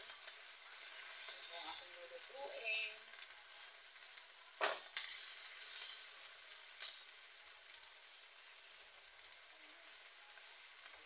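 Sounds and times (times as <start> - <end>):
chicken sizzling in wok: 0.0 - 11.0.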